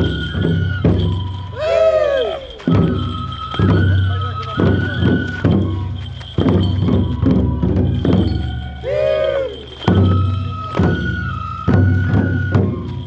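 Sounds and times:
flute high held notes: 0.0s - 13.0s
large drums beating: 0.0s - 13.0s
rising-and-falling call: 7.2s - 13.0s.

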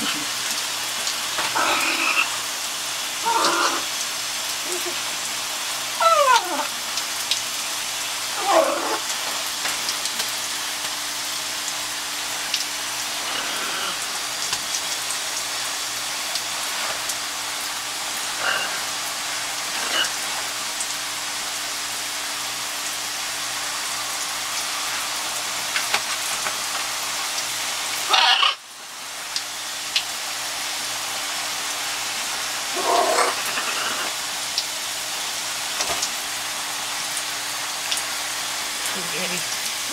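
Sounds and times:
shower spray hissing: 0.0s - 39.9s
macaw squawks: 28.1s - 28.6s.

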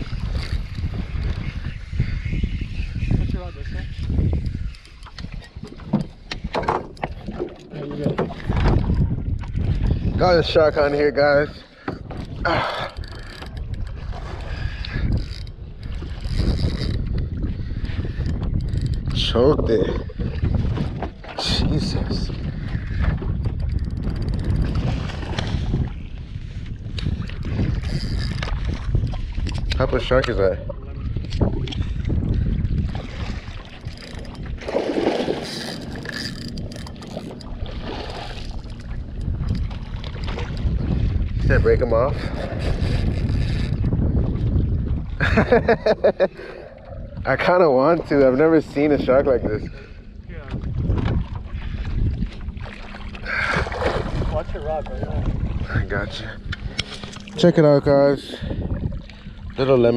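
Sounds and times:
water lapping against canoe: 0.0s - 59.9s
wind buffeting microphone: 0.0s - 59.9s
fish thrashing and splashing: 32.9s - 40.8s, 52.4s - 54.6s
fishing reel clicks: 35.4s - 37.5s.

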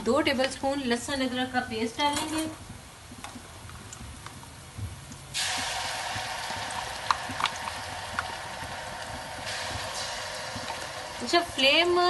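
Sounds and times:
sharp ticks of frying: 2.5s - 12.0s
paste sizzling in hot oil: 5.3s - 12.0s.

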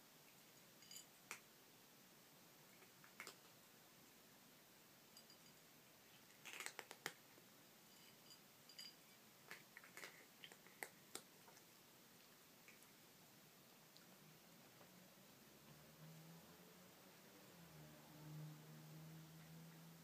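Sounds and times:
cats crunching dry kibble: 2.7s - 3.5s, 6.1s - 7.4s, 9.4s - 11.7s.

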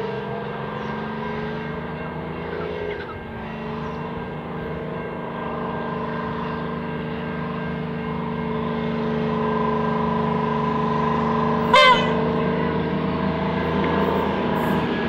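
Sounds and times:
diesel rail motor engine drone: 0.0s - 15.0s
loud horn blast: 11.6s - 12.7s.

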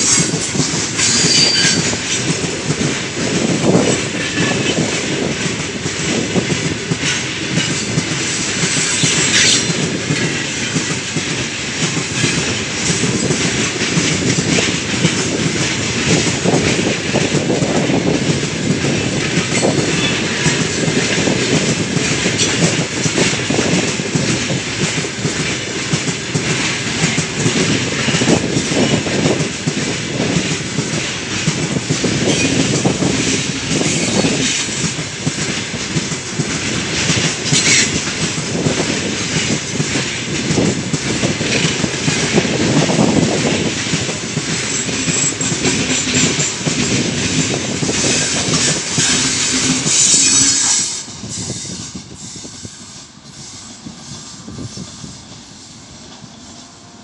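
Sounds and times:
freight train rumbling past: 0.0s - 57.0s
high wheel screech: 1.0s - 2.0s, 48.0s - 55.0s.

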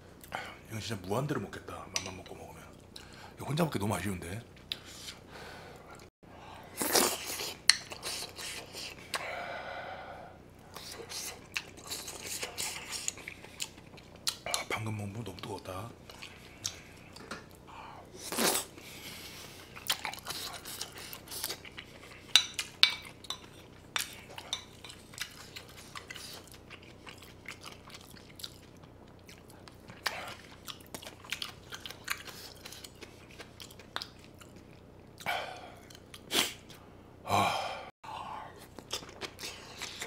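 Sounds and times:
chewing and biting food: 10.7s - 14.7s, 18.2s - 36.8s, 38.6s - 40.0s.

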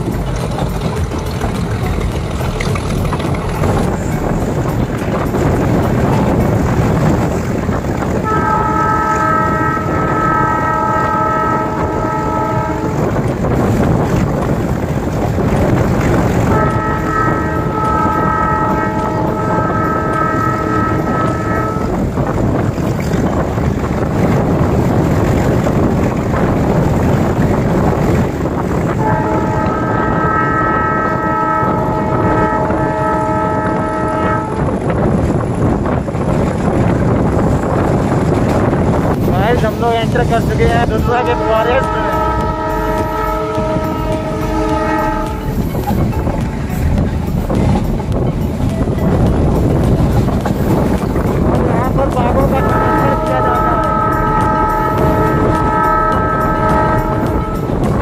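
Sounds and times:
train coach rumbling: 0.0s - 58.0s
locomotive horn blasts: 3.6s - 23.4s, 26.1s - 35.3s, 39.5s - 46.2s, 52.3s - 58.0s.

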